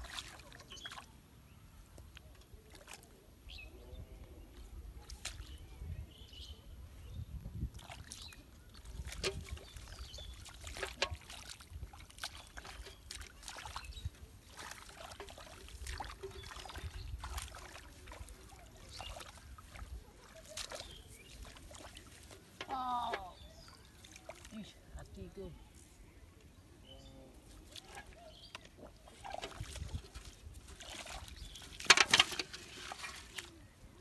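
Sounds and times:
hands splashing in muddy water: 0.0 - 1.1, 7.7 - 24.6, 27.6 - 33.6.

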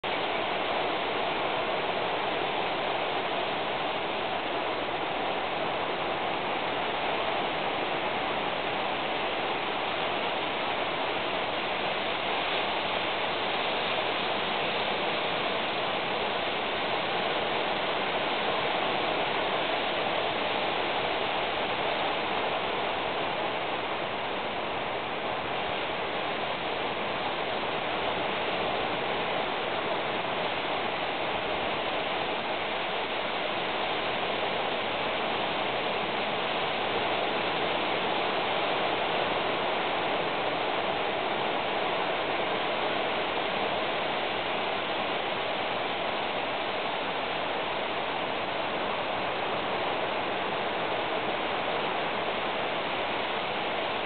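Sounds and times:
steady rushing noise: 0.0 - 54.0.

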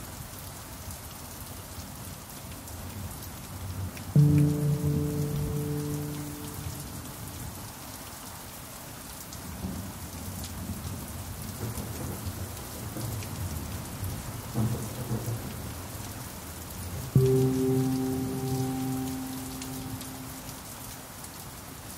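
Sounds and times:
steady rain: 0.0 - 21.9
pan drum note: 4.2 - 7.3, 17.2 - 20.7.

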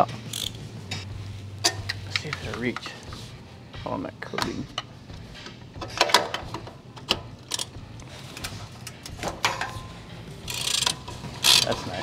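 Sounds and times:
ratchet mechanism buzzing: 0.3 - 0.6, 10.4 - 11.8.

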